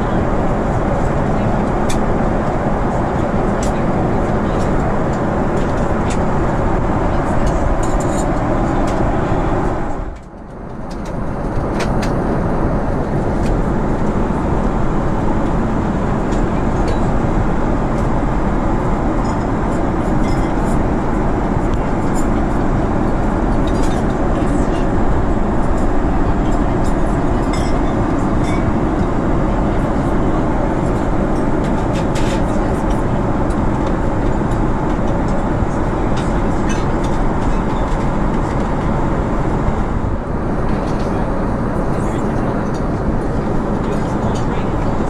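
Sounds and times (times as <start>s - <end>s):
airliner cabin noise: 0.0s - 45.0s.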